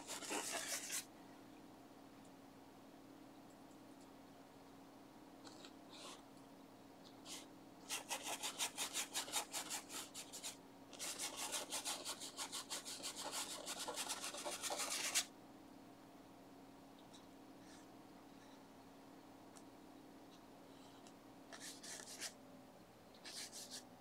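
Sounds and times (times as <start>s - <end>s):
paintbrush scrubbing on canvas: 0.0s - 1.1s.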